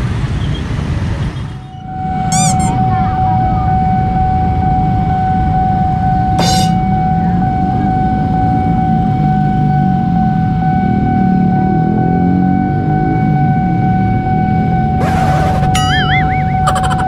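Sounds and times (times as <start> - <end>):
level crossing electronic tone: 2.2 - 2.8, 6.4 - 6.9, 14.8 - 17.0
high warbling chirps: 2.3 - 2.8, 15.6 - 17.0
motorcycle engines running: 10.7 - 17.0.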